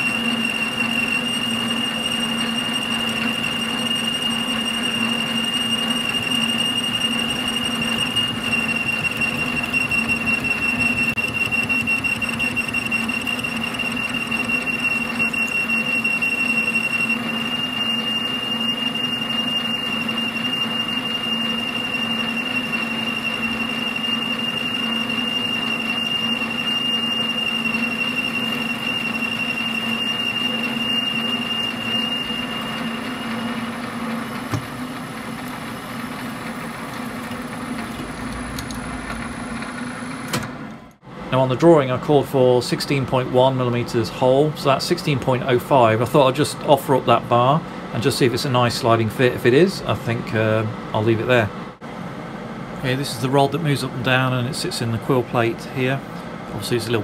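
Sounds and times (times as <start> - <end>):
lathe humming: 0.0 - 41.1.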